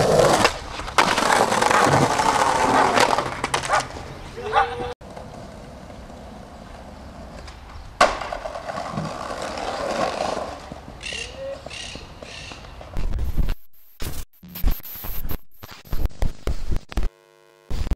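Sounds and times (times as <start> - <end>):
video glitch static bursts: 13.0 - 17.9.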